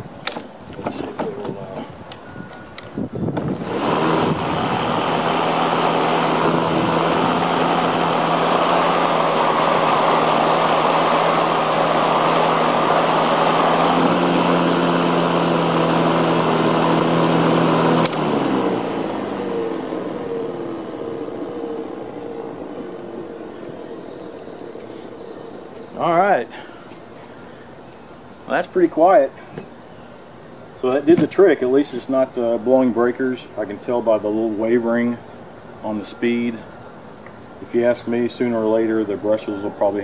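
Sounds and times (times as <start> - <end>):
electric lawn mower humming: 2.8 - 28.1.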